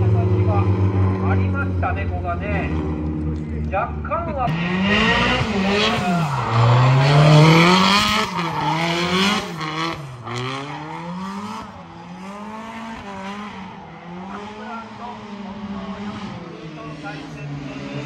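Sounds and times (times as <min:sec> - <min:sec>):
car engine revving: 0:00.0 - 0:18.0
tyre squeal: 0:05.4 - 0:09.5.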